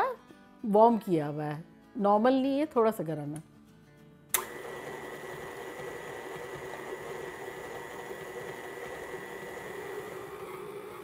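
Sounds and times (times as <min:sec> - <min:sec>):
stand mixer motor hum: 0:04.4 - 0:11.0.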